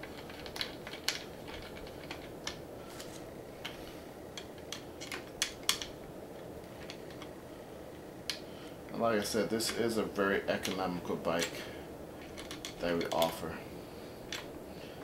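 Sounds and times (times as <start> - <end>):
small clicks and metallic ticks: 0.0 - 2.6, 4.4 - 7.3, 10.5 - 11.6, 12.2 - 13.4
steady low hum: 0.0 - 15.0.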